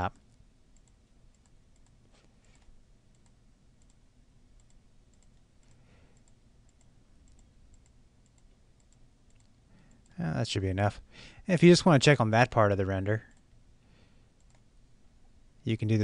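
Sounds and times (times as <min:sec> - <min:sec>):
computer mouse clicks: 0:00.3 - 0:04.0, 0:04.6 - 0:10.2, 0:14.4 - 0:14.7.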